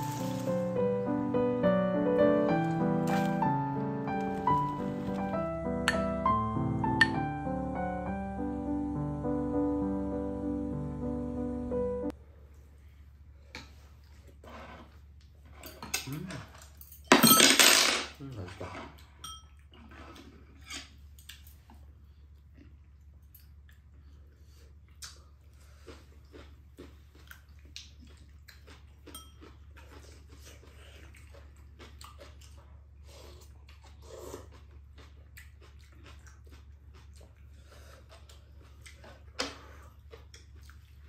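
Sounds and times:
chewing: 18.5s - 41.0s.

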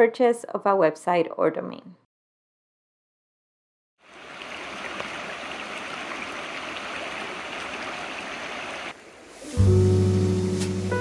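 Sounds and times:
stream flowing over stones: 4.0s - 9.6s.

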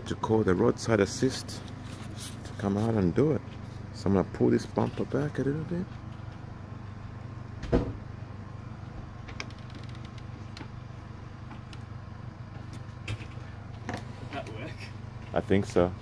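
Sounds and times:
vehicle engine idling: 0.0s - 16.0s
bumper thump: 7.6s - 8.1s.

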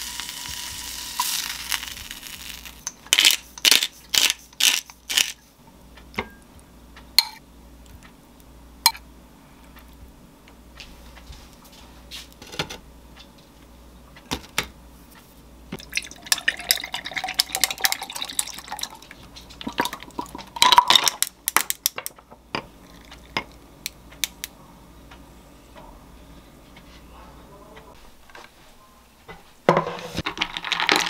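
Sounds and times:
milk pouring into glass: 15.8s - 19.1s.

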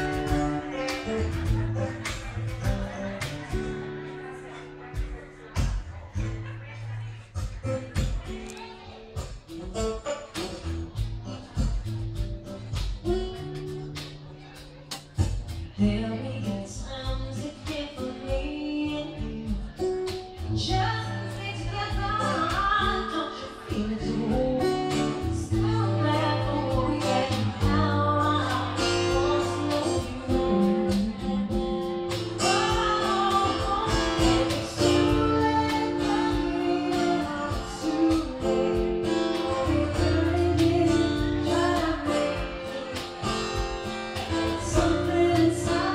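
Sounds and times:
acoustic guitar: 0.0s - 45.9s
cajon beat: 0.0s - 45.9s
woman singing: 15.6s - 45.9s.

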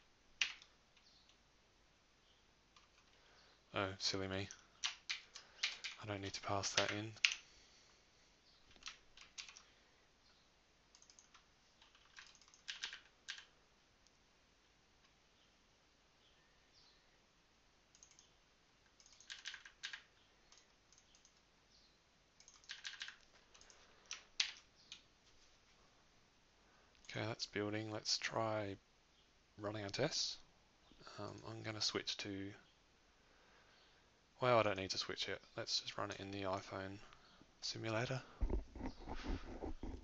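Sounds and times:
faint keyboard typing: 0.4s - 1.4s, 2.7s - 3.3s, 4.4s - 7.5s, 8.6s - 9.8s, 10.9s - 14.2s, 17.8s - 21.5s, 22.4s - 25.1s, 31.1s - 31.6s, 38.0s - 40.0s.

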